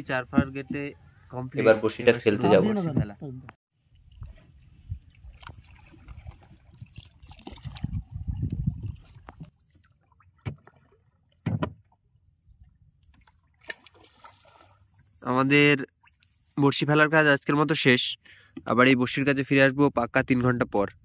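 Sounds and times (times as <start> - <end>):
water splashing around boat: 3.8 - 12.2, 13.0 - 15.2.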